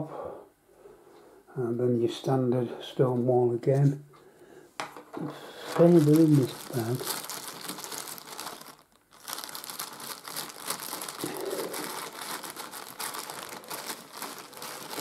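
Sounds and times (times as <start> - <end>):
plastic bag crinkling: 5.2 - 15.0.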